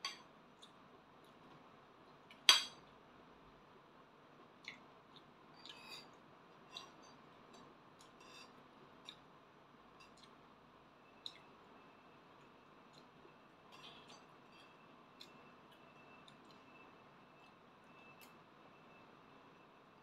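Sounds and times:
cutlery clinking on a plate: 2.4 - 2.8.

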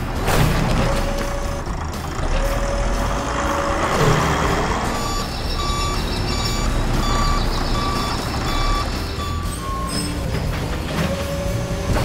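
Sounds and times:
diesel engine rumbling: 0.0 - 12.0
reversing alarm beeps: 4.9 - 10.2, 11.0 - 12.0.

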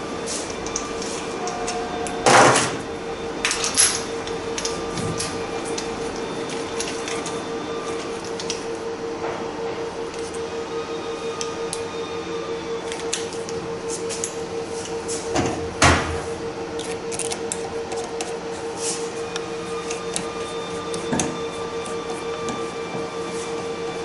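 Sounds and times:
steady hum: 0.0 - 24.0
metal tools clicking and clanking: 3.4 - 5.9.

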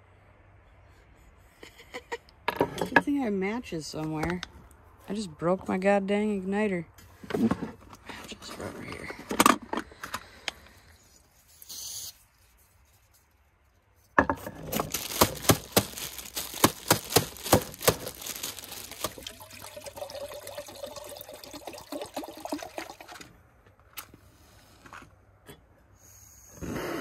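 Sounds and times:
water pouring into a pot: 18.5 - 23.2.

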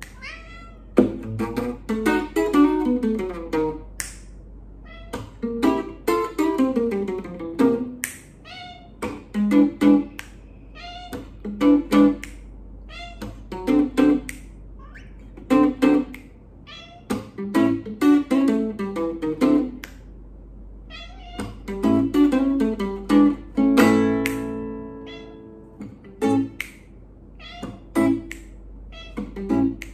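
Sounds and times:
cat meowing: 0.1 - 1.0, 4.8 - 5.4, 8.4 - 9.0, 10.7 - 11.4, 12.9 - 13.5, 14.8 - 15.2, 16.6 - 17.4, 20.9 - 21.7, 24.9 - 25.6, 27.4 - 28.2, 28.9 - 29.5
electric guitar blues: 1.0 - 3.9, 5.1 - 8.0, 11.1 - 12.2, 17.1 - 19.8, 21.4 - 26.6, 27.6 - 28.3.

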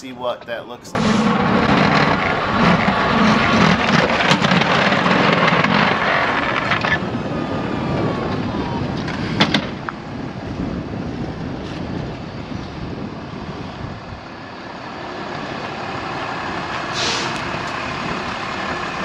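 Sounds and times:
truck engine running: 1.0 - 10.7, 13.5 - 19.0
short hiss: 17.0 - 17.4.

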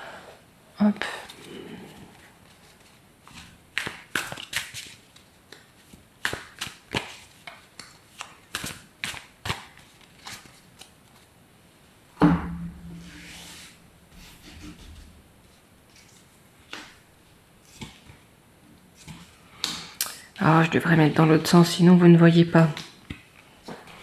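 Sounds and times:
cards shuffling: 2.5 - 11.3.

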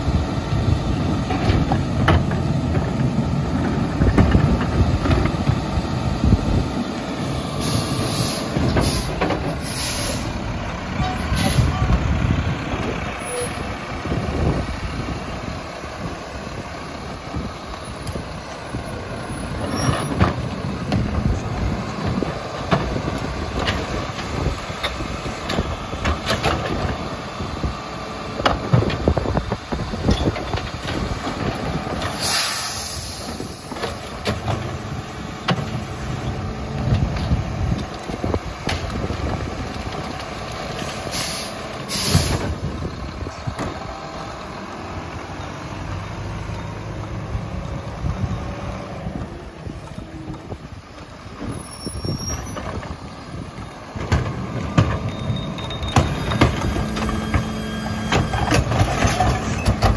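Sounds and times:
garbage truck running: 0.0 - 59.9
knocks and clanks: 1.2 - 5.6, 53.9 - 59.9
air brake hiss: 7.6 - 10.4, 11.3 - 11.8, 32.1 - 33.7, 41.1 - 42.5.

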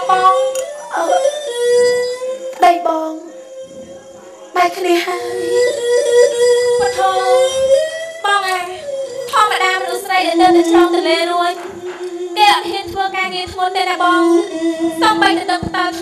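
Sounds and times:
held accompanying tone: 0.0 - 16.0
high voice singing ornamented melody: 0.0 - 16.0
sharp percussion strikes: 5.6 - 16.0.

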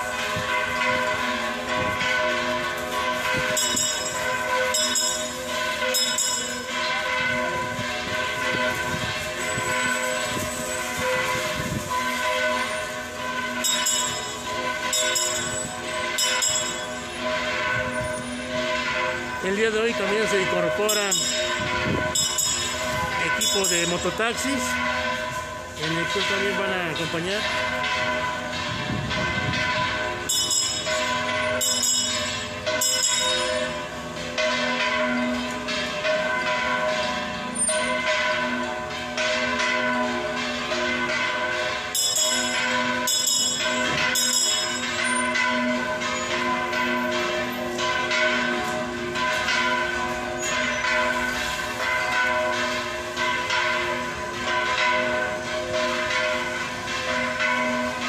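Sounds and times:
church bells ringing: 0.0 - 58.0.

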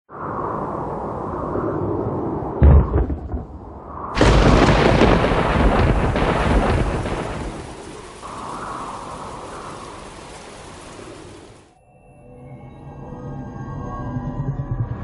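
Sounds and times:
heavy low thud: 2.6 - 3.6
thunder-like crash rumbling: 2.6 - 11.4.

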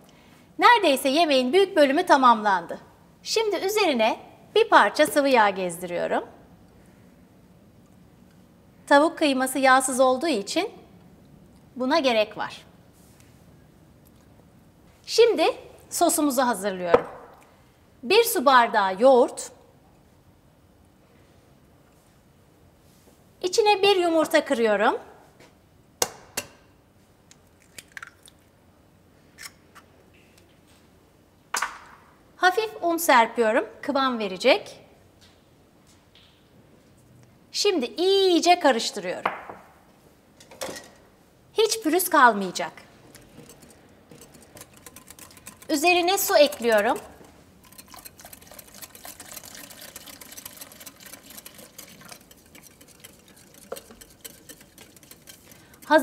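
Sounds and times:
whisk clicking against glass bowl: 43.1 - 56.0.

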